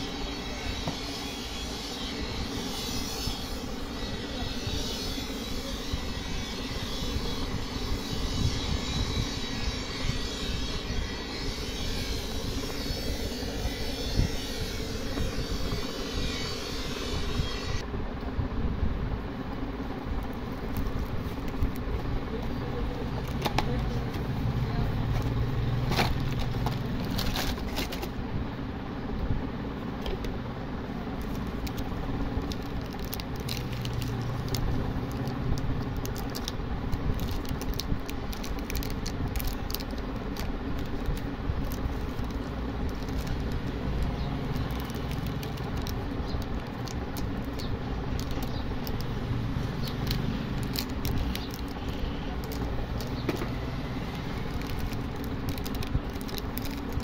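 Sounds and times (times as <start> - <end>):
low background rumble: 0.0 - 57.0
plastic wrappers crinkling: 25.0 - 28.2, 31.2 - 57.0.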